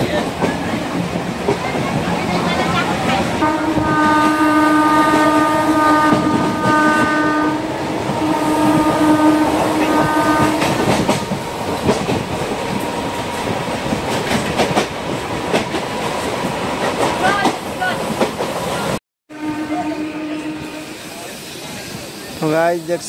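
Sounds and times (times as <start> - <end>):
train running rumble: 0.0 - 23.0
train horn blasts: 3.4 - 11.7, 19.3 - 21.3.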